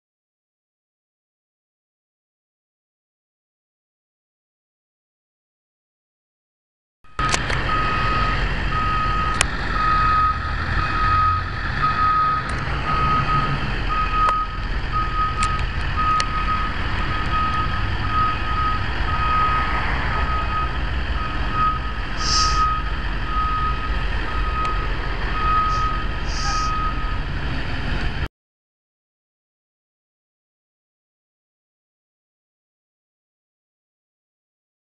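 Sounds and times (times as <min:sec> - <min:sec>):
reverse alarm beeping: 0:07.1 - 0:27.3
engine idling: 0:07.2 - 0:28.2.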